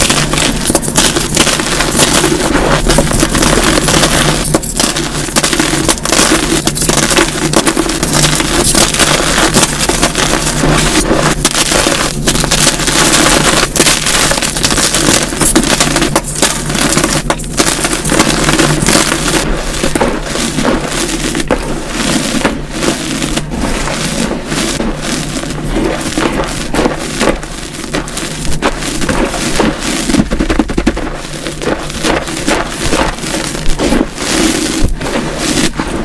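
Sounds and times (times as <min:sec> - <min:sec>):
chalk crunching by hand: 0:00.0 - 0:36.0.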